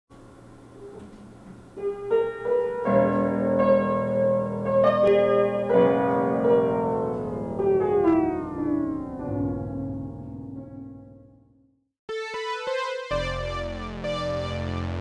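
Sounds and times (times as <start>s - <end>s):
keyboard music: 1.8s - 15.0s.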